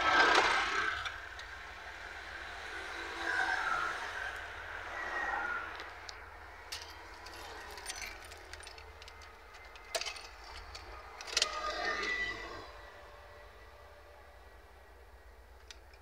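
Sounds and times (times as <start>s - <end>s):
metallic clicks: 6.0s - 12.2s
car keys jangling: 6.7s - 11.6s.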